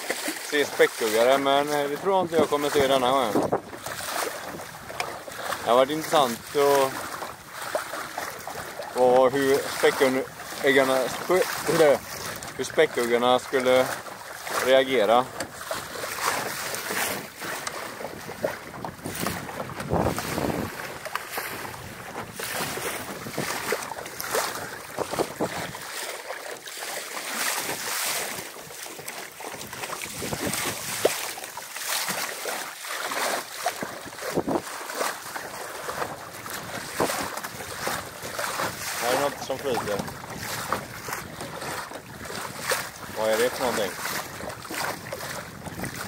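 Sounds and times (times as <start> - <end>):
water lapping against boat hull: 0.0 - 46.0
wind buffeting microphone: 2.2 - 5.7, 15.1 - 26.0, 29.5 - 31.4, 34.0 - 34.7, 35.9 - 46.0.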